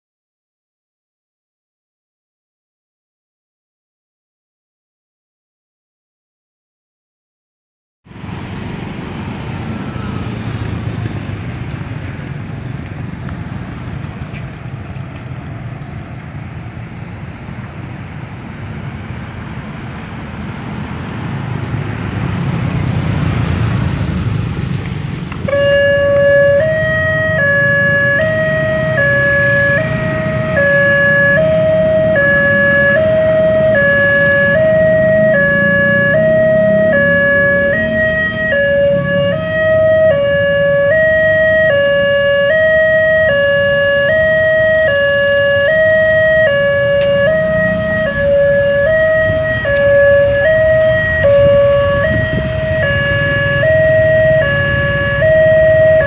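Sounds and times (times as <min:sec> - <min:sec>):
road traffic: 0:08.0 - 0:56.0
level crossing two-tone alarm: 0:25.5 - 0:56.0.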